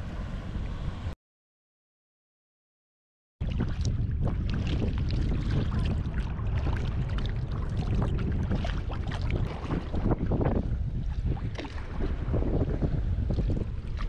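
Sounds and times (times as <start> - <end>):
water splashing against kayak: 3.4 - 14.0
wind buffeting microphone: 3.4 - 14.0.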